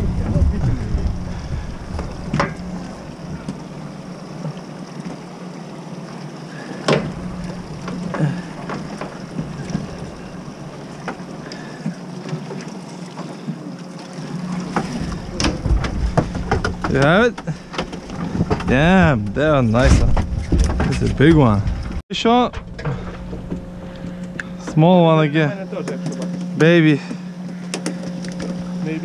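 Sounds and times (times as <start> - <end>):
boat machinery hum: 0.0 - 29.0.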